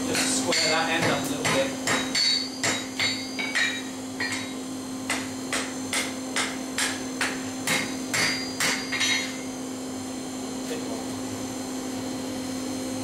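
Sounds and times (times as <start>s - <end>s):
hammer striking metal on anvil: 0.1s - 9.5s.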